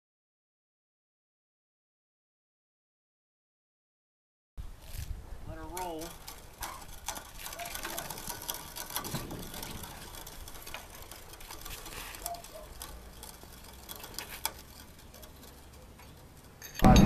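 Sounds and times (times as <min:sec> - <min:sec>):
trailer wheels clicking and rattling: 0:04.8 - 0:17.0.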